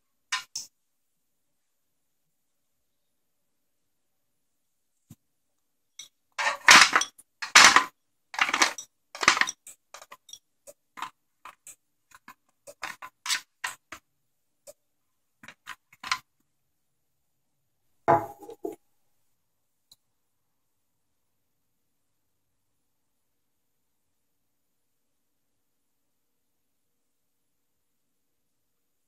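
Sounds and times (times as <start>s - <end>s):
dish knocking with a ring: 18.1s - 18.8s.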